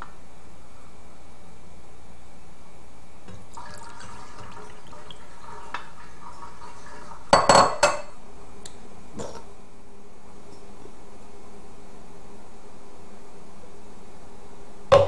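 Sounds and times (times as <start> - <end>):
juice trickling into glass: 3.3 - 5.9
glass knocking on counter: 7.4 - 8.0.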